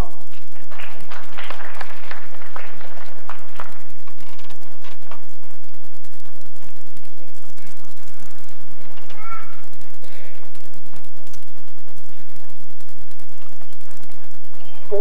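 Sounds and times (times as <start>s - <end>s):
audience applause: 0.4s - 5.1s.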